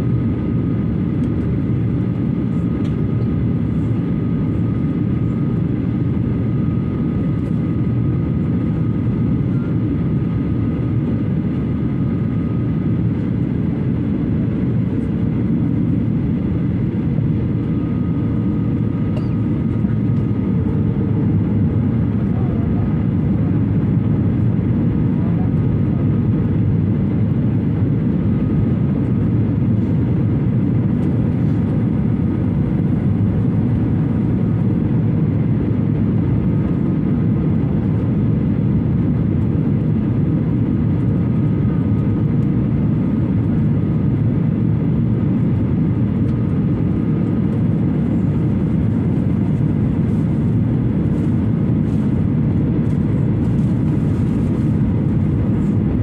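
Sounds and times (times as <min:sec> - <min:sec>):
jet engines and rushing air roar: 0:00.0 - 0:56.0
faint high whine: 0:19.1 - 0:19.7.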